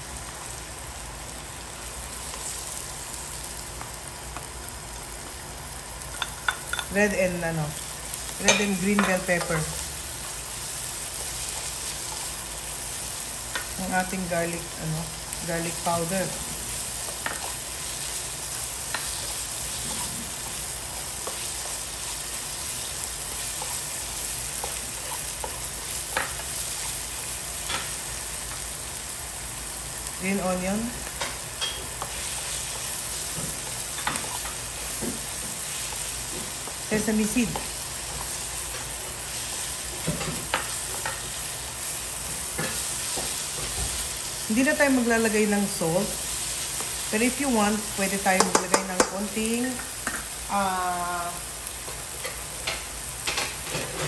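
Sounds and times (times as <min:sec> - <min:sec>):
food sizzling in frying pan: 0:00.0 - 0:54.0
spatula tapping and scraping pan: 0:48.4 - 0:49.2.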